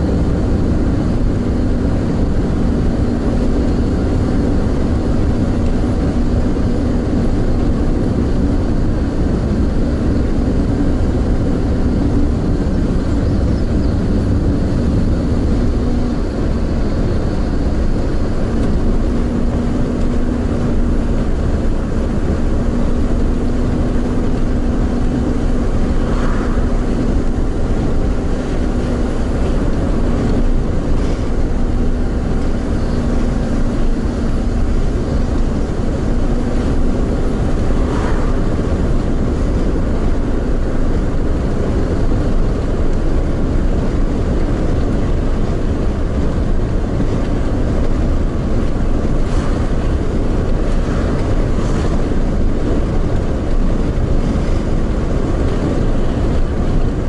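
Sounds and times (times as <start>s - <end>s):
road and tyre rumble: 0.0s - 57.0s.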